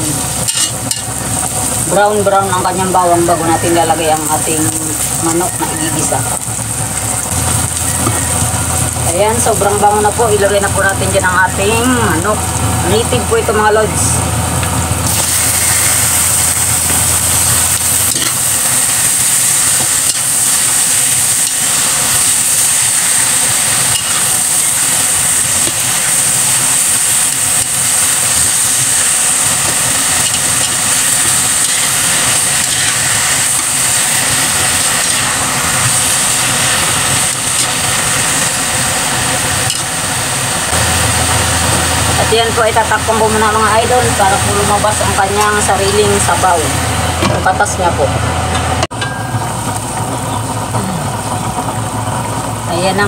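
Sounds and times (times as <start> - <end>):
chicken sizzling in hot oil: 0.0 - 47.2, 48.7 - 53.0
metal spatula scraping a wok: 0.4 - 1.1, 17.8 - 18.7.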